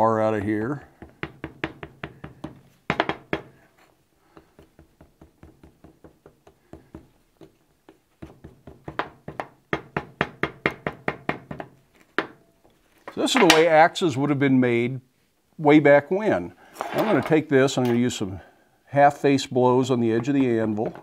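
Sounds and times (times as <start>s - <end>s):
wooden board knocking on steel: 1.0s - 3.5s.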